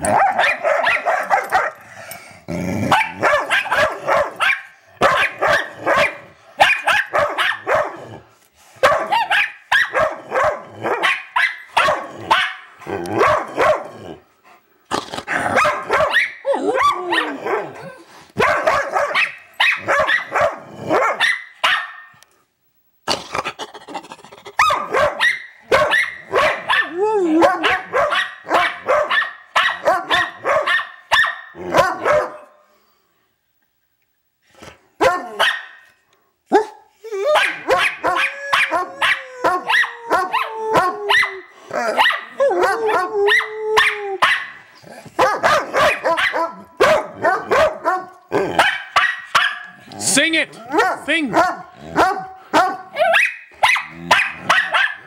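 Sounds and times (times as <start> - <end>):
dogs barking and yowling: 0.0 - 8.2, 8.8 - 14.2, 15.2 - 22.2, 24.4 - 32.5, 35.0 - 35.9, 36.5 - 49.9, 50.6 - 55.0
dog howling: 16.0 - 18.0, 26.7 - 28.1, 37.0 - 44.2.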